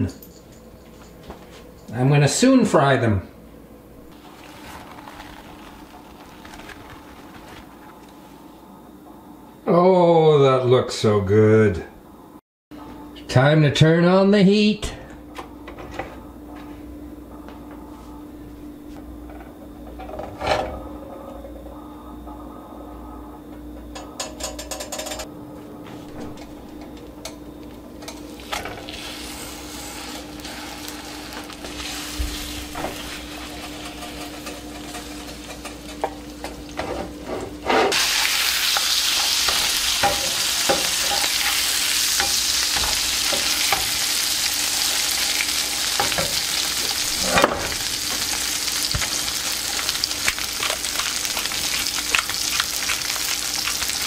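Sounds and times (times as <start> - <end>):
fish sizzling in frying pan: 37.9 - 54.0
butter crackling in pan: 47.8 - 54.0.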